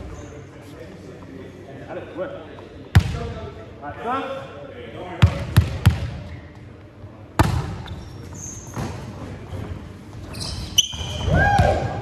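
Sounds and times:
volleyball bouncing and hit: 7.4s - 7.8s
short high squeaks: 7.8s - 8.8s, 10.2s - 11.3s.

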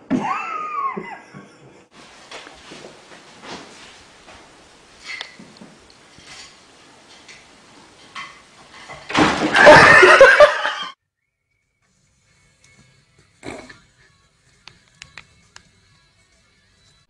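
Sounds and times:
chair crashing onto tile floor: 8.0s - 10.6s.

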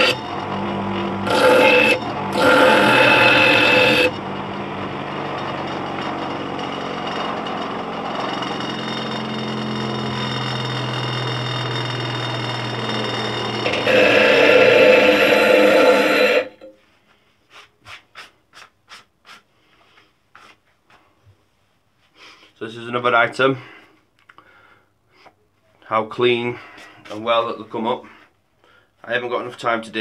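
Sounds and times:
grinder motor humming: 0.0s - 16.7s
metal grinding on grinder wheel: 0.0s - 16.7s.

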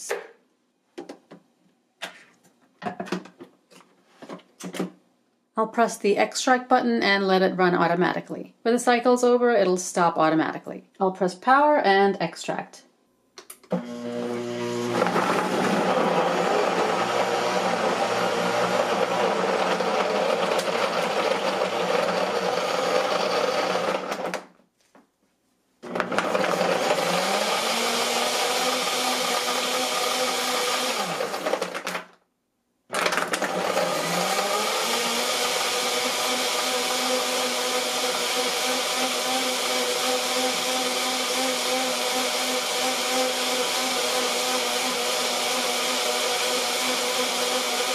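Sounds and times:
blender motor blending: 13.7s - 24.4s, 25.8s - 32.0s, 32.9s - 47.9s.

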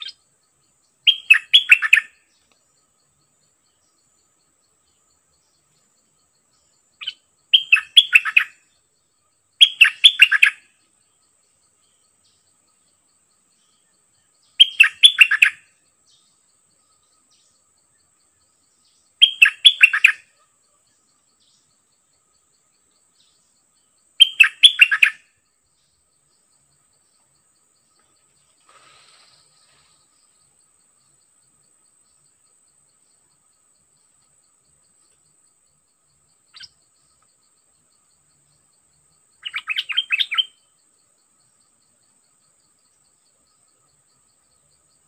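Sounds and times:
bird chattering calls: 1.1s - 2.2s, 7.0s - 8.6s, 9.6s - 10.7s, 14.6s - 15.6s, 19.2s - 20.2s, 24.2s - 25.2s, 36.5s - 36.7s, 39.4s - 40.6s.

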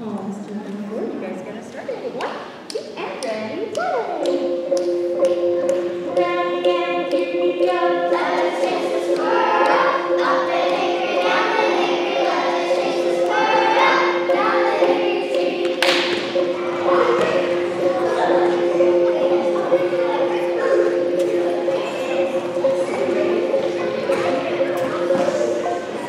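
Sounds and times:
drone of held notes: 3.8s - 26.0s
children singing together: 4.0s - 26.0s.

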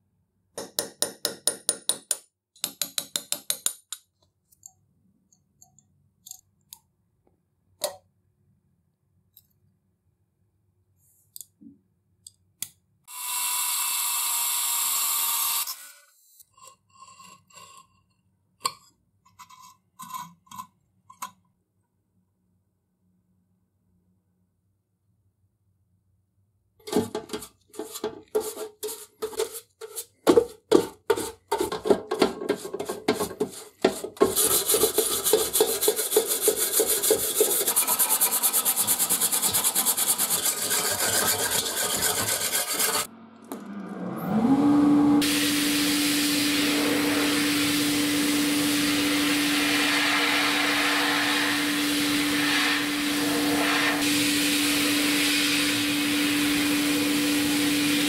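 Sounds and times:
brush scrubbing paint: 27.3s - 43.1s, 49.4s - 55.7s
sandblasting cabinet humming: 34.4s - 43.1s, 44.9s - 58.0s
hiss of sandblasting: 45.2s - 58.0s.

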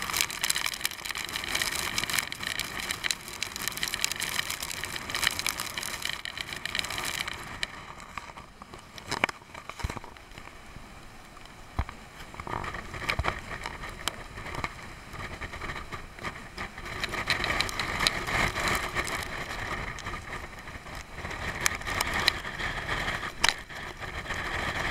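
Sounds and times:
rain ticking on window glass: 0.0s - 10.6s, 11.2s - 24.9s
wind and sea rushing: 0.0s - 24.9s.

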